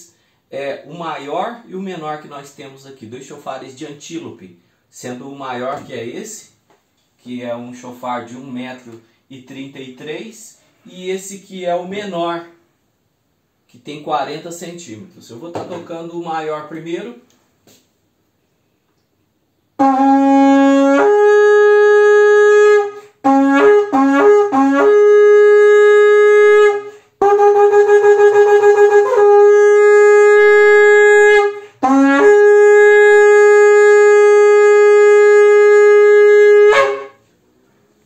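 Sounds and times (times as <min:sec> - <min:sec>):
shofar blasts: 0:19.8 - 0:37.3.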